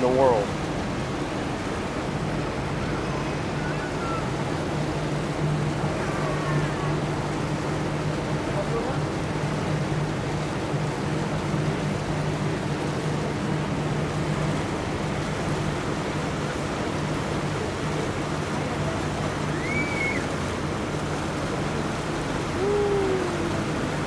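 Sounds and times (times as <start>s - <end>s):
boat engine humming: 0.0s - 24.0s
water rushing: 0.0s - 24.0s
wind: 0.0s - 24.0s
high whistle-like call: 19.5s - 20.2s.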